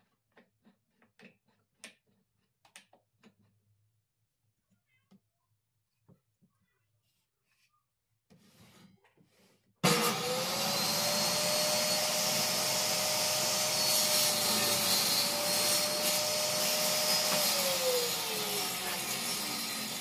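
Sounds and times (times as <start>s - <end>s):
table saw whining: 9.8s - 20.0s.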